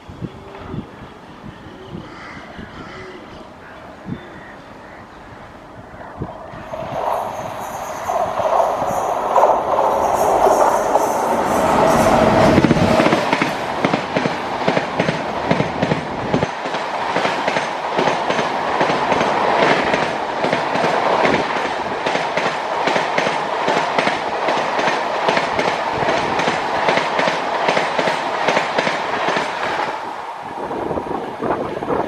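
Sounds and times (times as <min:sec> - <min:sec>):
locomotive passing with low rumble: 0:04.7 - 0:14.5
train wheels clickety-clack: 0:06.6 - 0:29.9.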